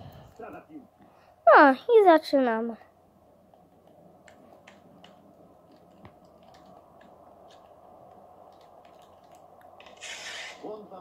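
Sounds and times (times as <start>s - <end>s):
low steady hum: 0.0s - 10.0s
light clicks and taps: 3.4s - 9.9s.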